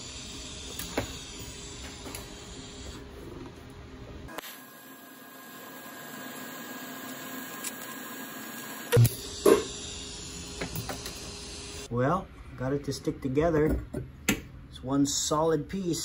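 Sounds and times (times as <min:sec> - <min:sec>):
welder hiss and hum: 0:00.0 - 0:03.4, 0:04.3 - 0:11.9.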